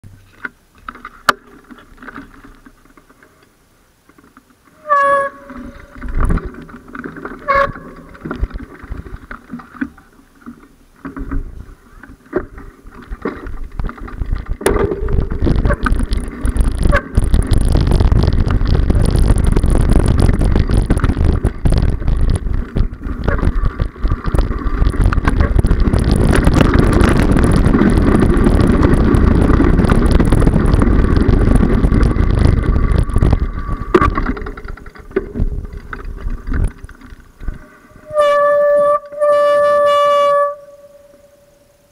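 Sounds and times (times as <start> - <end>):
rolling noise of ride: 0.0 - 41.9
short pitched squeaks: 4.8 - 6.0
wind buffeting microphone: 13.5 - 39.3.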